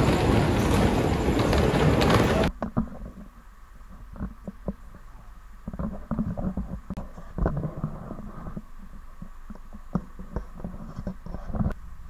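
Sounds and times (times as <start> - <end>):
footsteps in boat cabin: 0.0 - 2.5
boat engine low rumble: 0.0 - 2.6.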